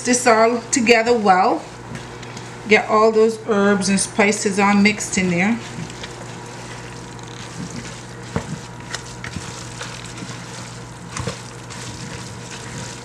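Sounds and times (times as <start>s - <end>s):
spatula stirring wet paste: 4.9s - 13.0s.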